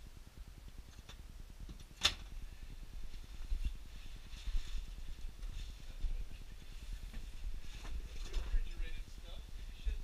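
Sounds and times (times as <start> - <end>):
clothing rustle: 3.0 - 8.9.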